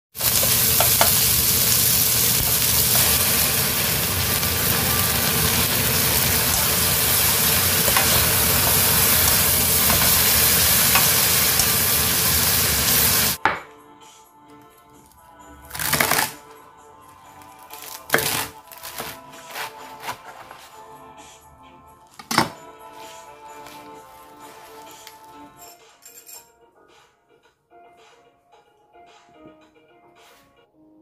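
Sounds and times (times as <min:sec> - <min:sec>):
vegetables sizzling in a pan: 0:00.2 - 0:13.4.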